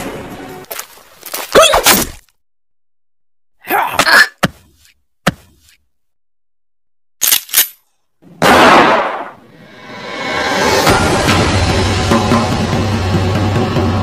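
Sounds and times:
gunshots: 0:08.4 - 0:09.4
loud blast: 0:08.4 - 0:13.1
music: 0:09.6 - 0:14.0.

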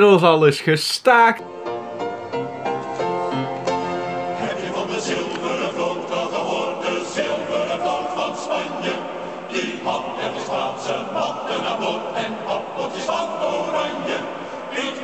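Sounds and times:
choir singing over a beat: 0:04.3 - 0:15.0.

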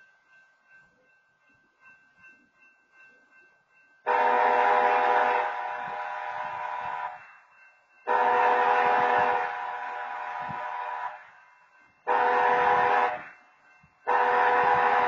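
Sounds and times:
train horn blasts: 0:04.1 - 0:07.2, 0:08.1 - 0:11.2, 0:12.1 - 0:13.3, 0:14.1 - 0:15.0.

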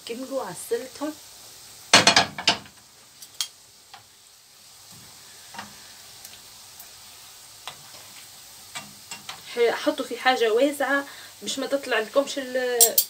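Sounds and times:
food deep-frying in oil: 0:00.0 - 0:13.0
metal spoon clattering on pan: 0:12.8 - 0:13.0.

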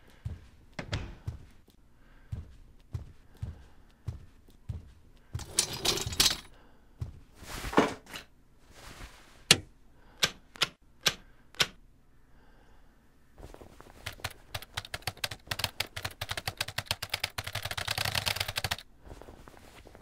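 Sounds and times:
soft thudding footsteps: 0:00.0 - 0:09.5, 0:13.4 - 0:14.2, 0:19.0 - 0:20.0
rustling handling noise: 0:04.4 - 0:09.5, 0:18.5 - 0:20.0.

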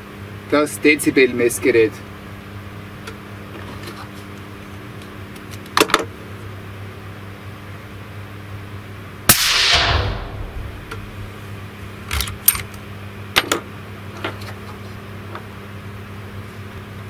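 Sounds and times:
steady low hum: 0:06.2 - 0:14.1
suppressed rifle shot: 0:09.3 - 0:11.4.

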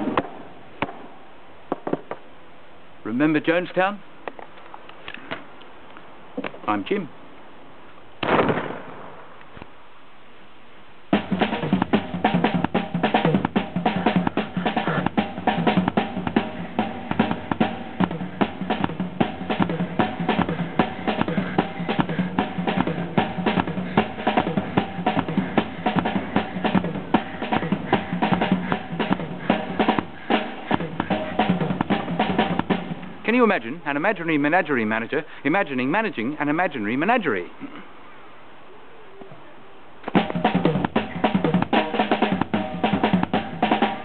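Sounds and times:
pistol shot: 0:08.2 - 0:09.2
fast frantic drumming on drum kit: 0:11.2 - 0:33.0, 0:40.2 - 0:44.0.

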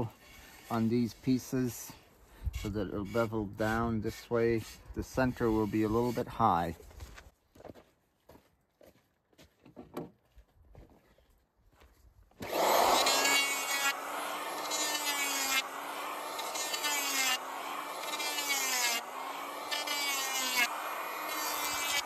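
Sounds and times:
cutter shaving wood: 0:00.0 - 0:01.8, 0:02.5 - 0:06.7, 0:12.4 - 0:22.0
electric planer motor whine: 0:12.4 - 0:22.0.

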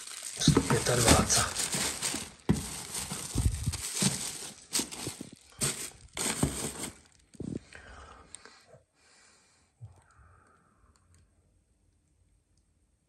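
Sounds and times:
plastic bags crinkling: 0:00.0 - 0:07.6.

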